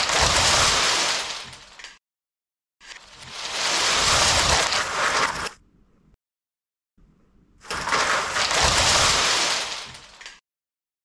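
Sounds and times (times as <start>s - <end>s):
plastic bricks crashing and clattering: 0.0s - 2.0s, 2.9s - 5.5s, 7.6s - 10.4s.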